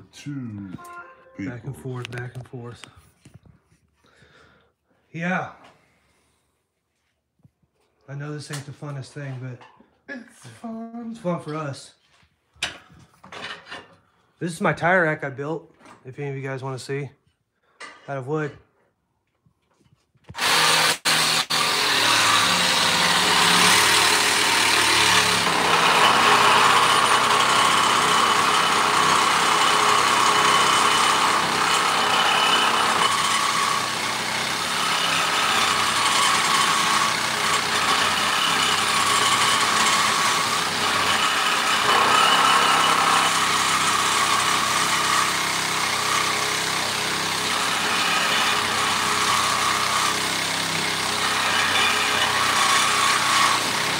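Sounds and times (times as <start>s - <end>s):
angle grinder cutting steel: 20.3s - 53.9s.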